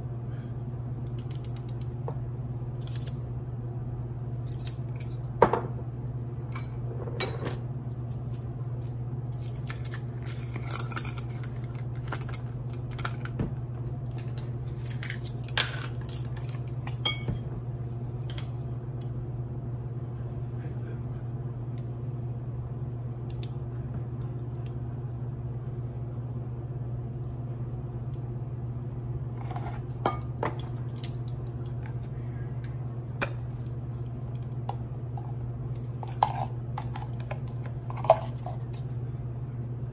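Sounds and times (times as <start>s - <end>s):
steady low hum: 0.0s - 39.9s
metal spoons clinking on jars: 14.8s - 17.4s.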